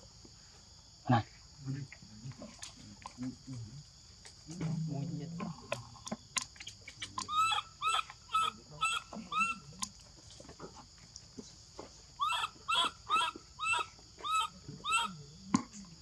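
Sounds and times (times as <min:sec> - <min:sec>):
baby monkey squealing: 0:06.8 - 0:09.7, 0:12.2 - 0:15.2.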